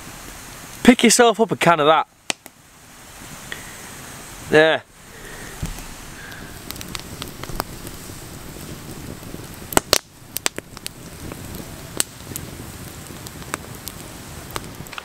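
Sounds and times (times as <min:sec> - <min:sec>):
campfire crackling: 0:00.0 - 0:15.0
sharp fire pops: 0:02.2 - 0:02.6, 0:05.1 - 0:15.0.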